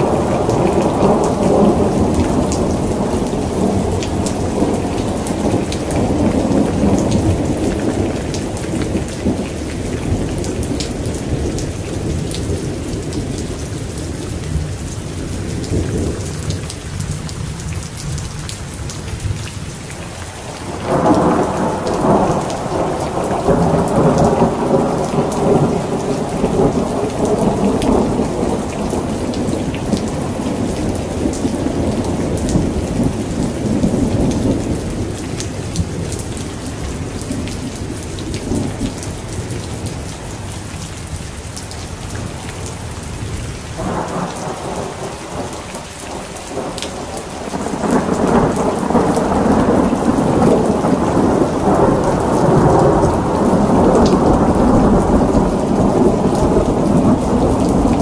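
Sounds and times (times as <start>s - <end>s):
heavy rain falling: 0.0s - 58.0s
thunder rumbling: 20.4s - 39.9s, 42.7s - 58.0s
loud peal of thunder: 43.8s - 58.0s.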